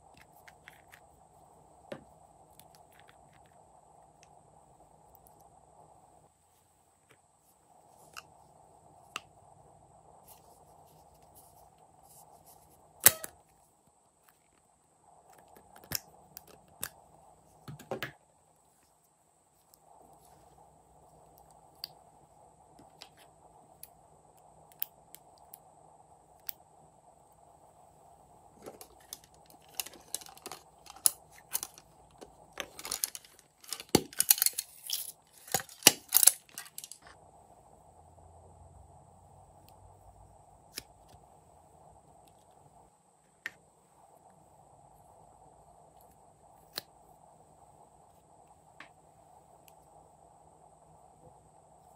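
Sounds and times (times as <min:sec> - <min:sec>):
makeup cases clicking and rattling: 0:28.6 - 0:37.1.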